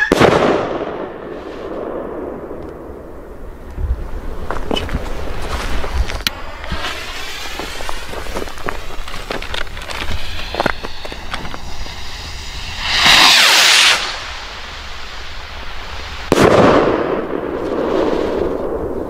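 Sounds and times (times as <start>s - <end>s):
firework bang: 0.0s - 2.5s, 6.6s - 8.2s, 10.0s - 18.8s
fuse sputtering and crackling: 5.9s - 12.0s
rocket launching with rushing hiss: 6.4s - 19.0s.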